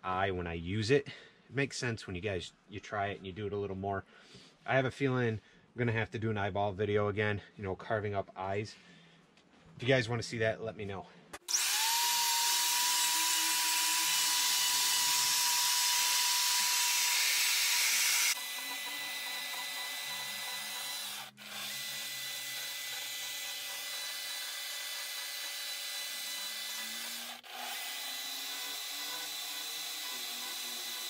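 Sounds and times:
small chainsaw cutting wood: 11.4s - 31.0s
die grinder whining on wood: 11.5s - 31.0s.

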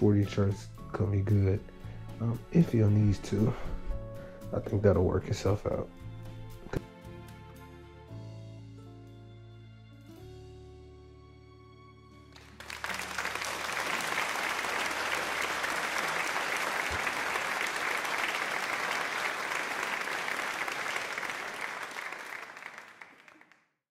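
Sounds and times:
applause: 12.3s - 23.9s.

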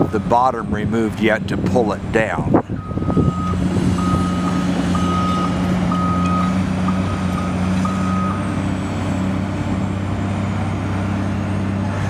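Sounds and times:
excavator diesel engine running: 0.0s - 12.0s
backup alarm beeping: 2.8s - 8.5s.

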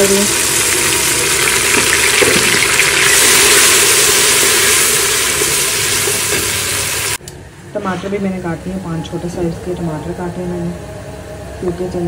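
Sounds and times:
garlic sizzling in hot oil: 0.0s - 7.2s.

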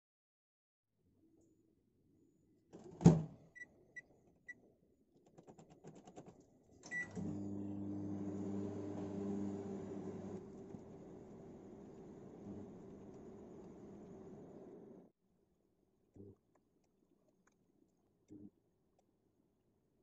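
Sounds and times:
microwave fan hum: 6.9s - 15.0s.

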